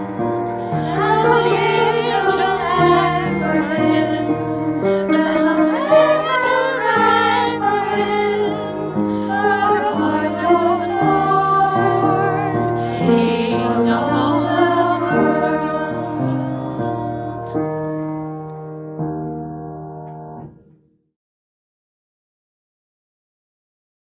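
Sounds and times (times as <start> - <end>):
women and children singing carol: 0.0 - 17.2
instrumental accompaniment: 0.0 - 20.9.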